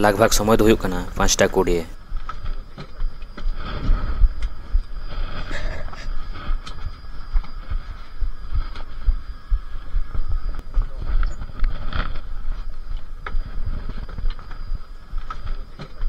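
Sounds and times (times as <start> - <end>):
faint high hum: 0.0 - 16.0
microphone handling rumble: 1.2 - 16.0.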